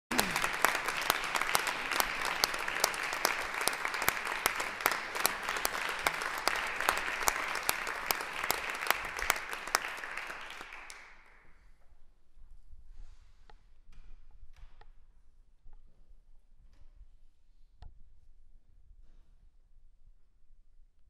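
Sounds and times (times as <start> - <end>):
audience applause: 0.1 - 11.4.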